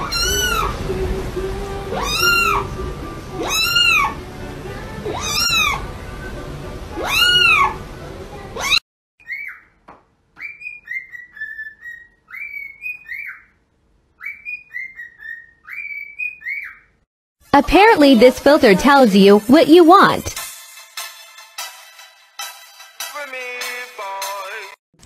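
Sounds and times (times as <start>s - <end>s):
kitten mewing: 2.0s - 2.6s, 3.4s - 4.1s, 5.1s - 5.8s, 7.0s - 7.8s
cockatiel whistling a tune: 10.4s - 13.5s, 14.2s - 16.9s.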